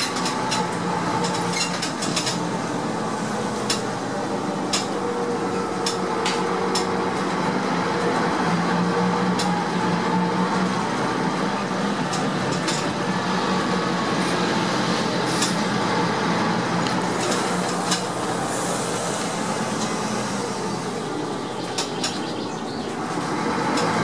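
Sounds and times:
bus engine drone: 0:00.0 - 0:24.0
rushing hiss: 0:17.0 - 0:21.5.

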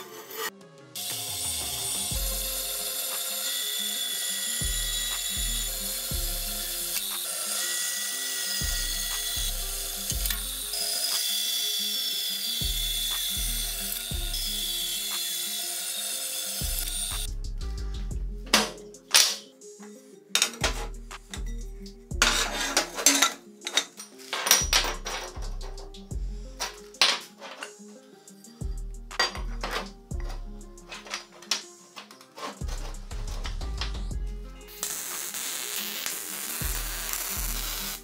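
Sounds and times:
band saw cutting steel: 0:00.0 - 0:17.3, 0:22.2 - 0:23.8, 0:34.7 - 0:38.0
background music with bass line: 0:00.6 - 0:03.0, 0:04.6 - 0:07.2, 0:08.6 - 0:10.9, 0:12.6 - 0:15.2, 0:16.6 - 0:19.8, 0:20.6 - 0:23.3, 0:24.6 - 0:27.1, 0:28.5 - 0:31.3, 0:32.6 - 0:34.9, 0:36.6 - 0:38.0.

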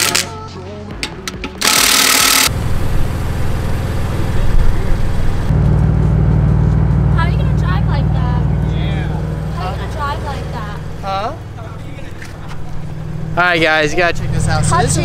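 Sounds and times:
impact wrench hammering: 0:01.0 - 0:02.5
low pulsing drone: 0:01.6 - 0:15.0.

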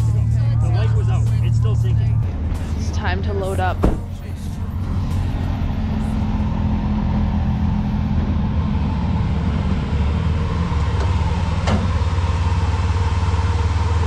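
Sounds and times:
vehicle engine low drone: 0:00.0 - 0:14.0.

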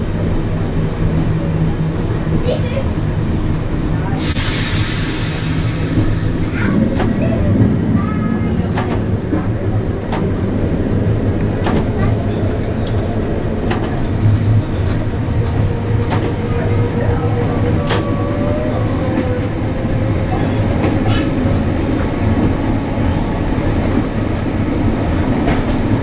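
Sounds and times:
tram motors and wheels rumbling: 0:00.0 - 0:26.0.

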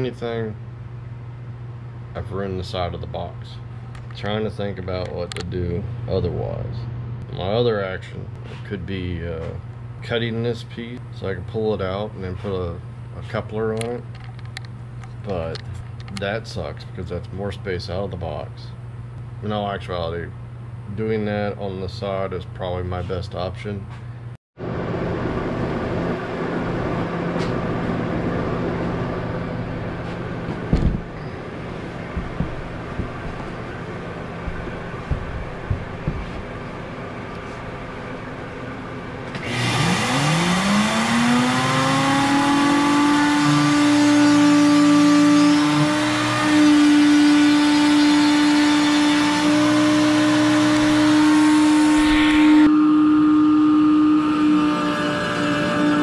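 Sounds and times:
router motor hum: 0:30.4 - 0:38.5, 0:39.2 - 0:56.0
heavy thump of wood enclosure: 0:30.6 - 0:31.1
rough cutting noise: 0:39.3 - 0:56.0.

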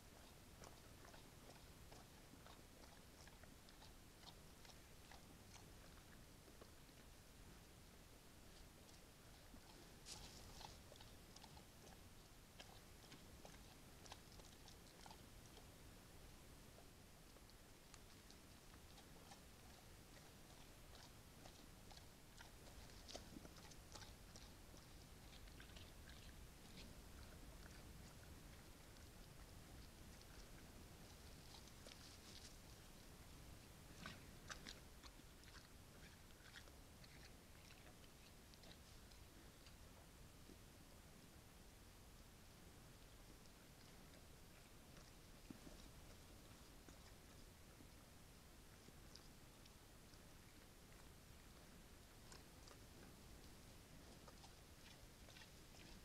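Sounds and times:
bear chewing food: 0:00.0 - 0:56.0.

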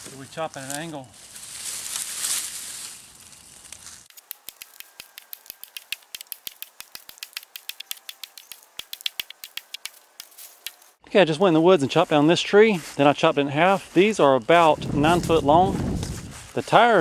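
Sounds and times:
hatchet chopping wood: 0:04.1 - 0:10.9.

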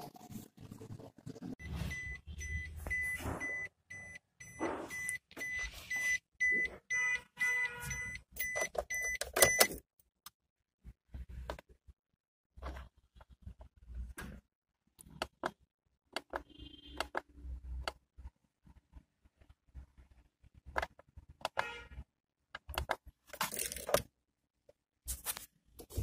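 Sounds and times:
car warning chime beeping: 0:01.6 - 0:09.8.

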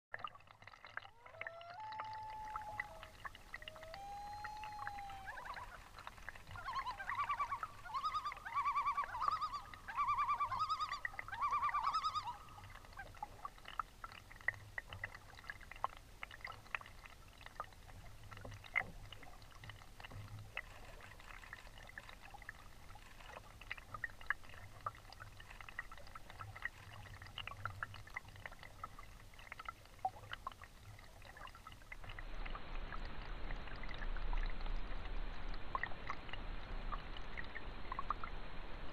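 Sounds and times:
water lapping: 0:00.1 - 0:32.2
loon calling: 0:01.1 - 0:12.6.

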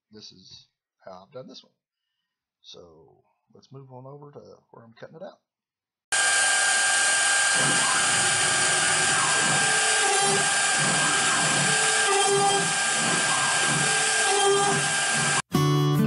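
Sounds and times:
router spindle whining: 0:06.1 - 0:15.4
bit grinding through wood: 0:06.2 - 0:15.4
guitar music: 0:15.5 - 0:16.0.

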